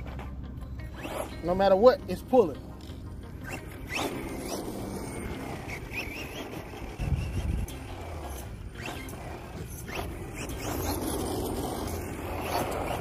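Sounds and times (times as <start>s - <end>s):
tyre and drivetrain noise: 0.0s - 13.0s
electric motor whining: 2.8s - 13.0s.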